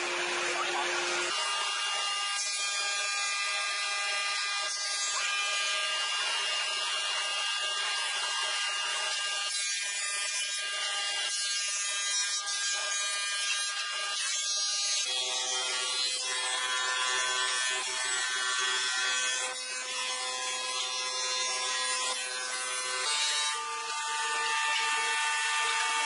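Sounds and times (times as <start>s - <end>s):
thickness planer high whine: 0.0s - 2.2s.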